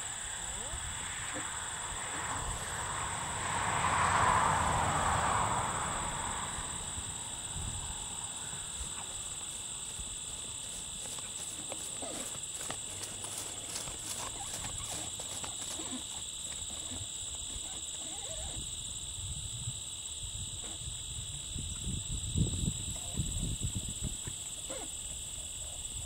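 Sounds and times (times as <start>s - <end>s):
hoofbeats on grass: 8.5s - 18.4s.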